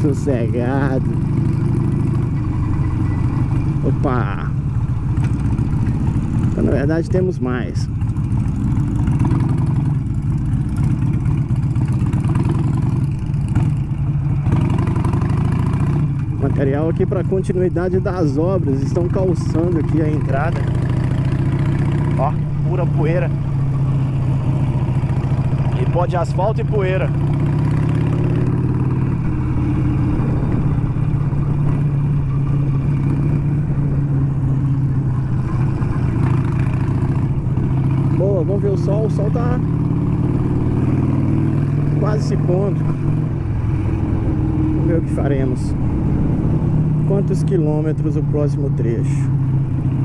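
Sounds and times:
motorcycle engine running: 0.0 - 50.0.

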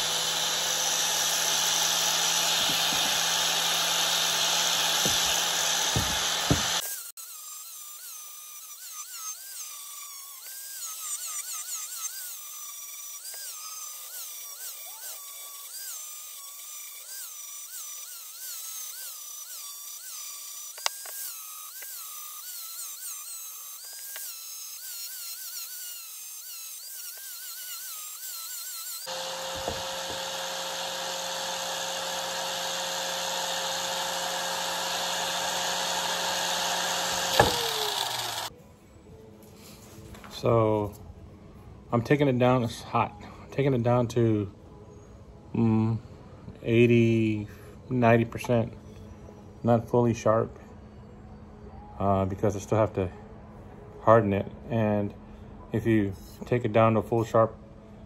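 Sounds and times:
electric grinder whining on blade: 0.0 - 38.5.

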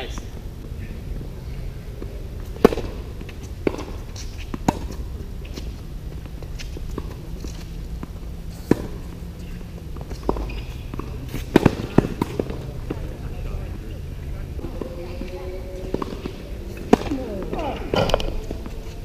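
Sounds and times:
tennis ball bounces: 2.0 - 13.3, 14.6 - 19.0
tennis racquet hits: 2.4 - 5.8, 6.6 - 13.2, 15.8 - 19.0.

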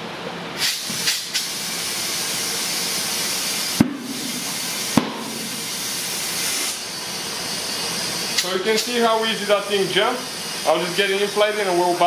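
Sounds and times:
compressed air hissing: 0.6 - 11.9
sharp pops: 3.8 - 5.4.

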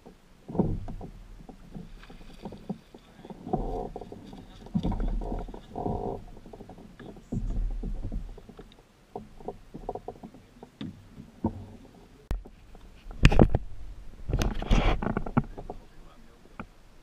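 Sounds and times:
kayak gear knocking: 0.0 - 16.8
low rumble: 3.2 - 8.4, 12.2 - 16.3.

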